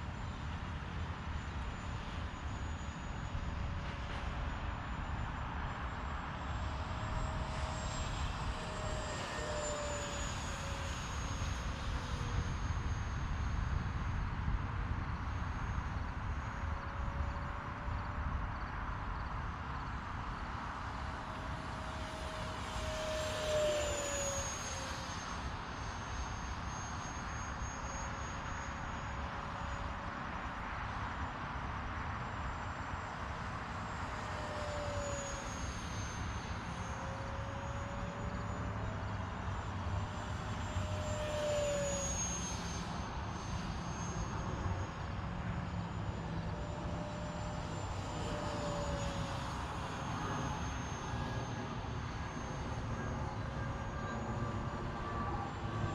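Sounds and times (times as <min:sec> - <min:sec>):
model jet fan whine: 0:00.0 - 0:55.9.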